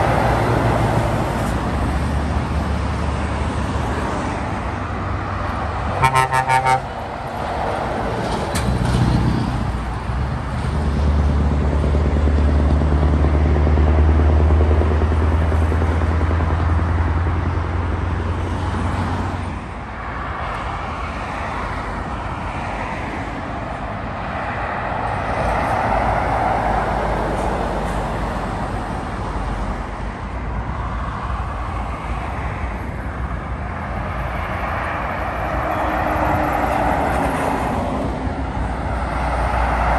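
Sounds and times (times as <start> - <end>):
road traffic noise: 0.0 - 39.9
vehicle horn toot: 6.0 - 6.9.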